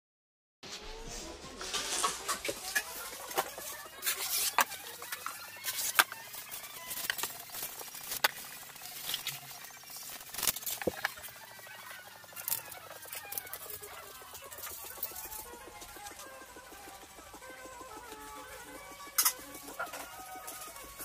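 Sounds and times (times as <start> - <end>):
paper rustling: 1.6 - 11.2.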